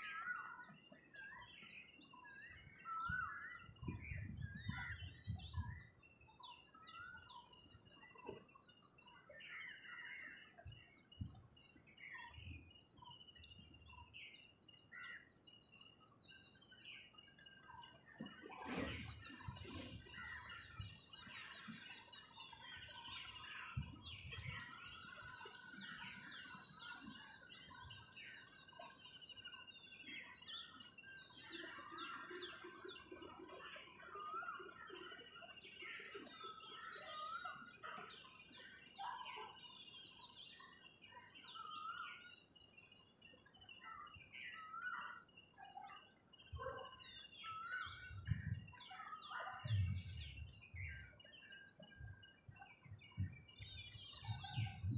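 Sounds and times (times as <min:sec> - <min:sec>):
birds chirping and trilling: 0:00.0 - 0:54.9.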